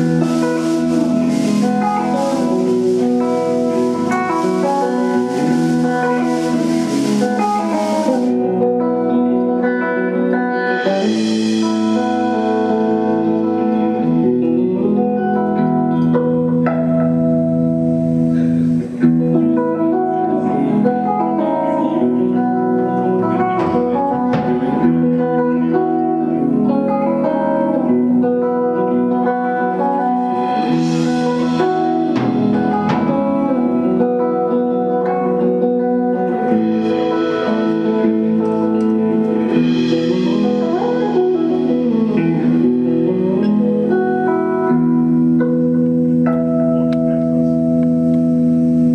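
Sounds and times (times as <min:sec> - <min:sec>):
cymbal washes: 0:00.0 - 0:08.6, 0:10.8 - 0:14.3, 0:30.1 - 0:34.2, 0:36.1 - 0:44.2
electric guitar lead: 0:00.0 - 0:48.9
jazz-funk band playing: 0:00.0 - 0:48.9.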